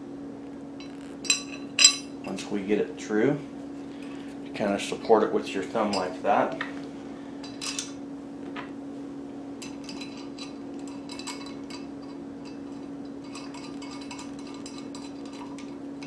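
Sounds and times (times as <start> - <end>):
low hum: 0.0 - 16.0
metal bolt and nut clinking: 0.8 - 2.6, 7.4 - 8.0, 9.6 - 16.0.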